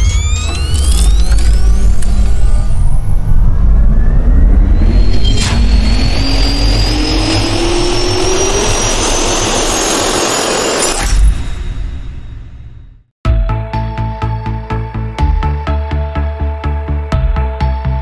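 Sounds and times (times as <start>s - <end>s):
jet engine spooling up: 0.0s - 12.2s
sharp hit: 0.0s - 13.0s.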